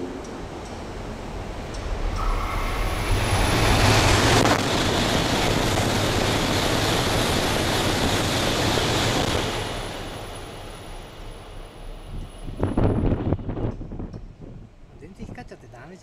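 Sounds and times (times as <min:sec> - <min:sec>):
bullet train passing at high speed: 0:00.0 - 0:16.0
faint high whine: 0:01.3 - 0:04.7.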